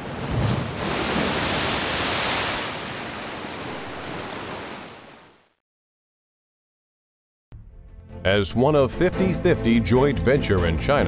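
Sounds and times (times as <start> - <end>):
ocean wave breaking: 0.0 - 5.6.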